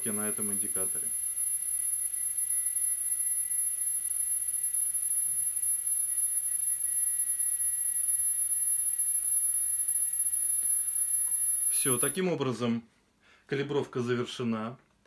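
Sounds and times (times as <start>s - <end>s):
high-pitched test tone: 0.0s - 12.2s.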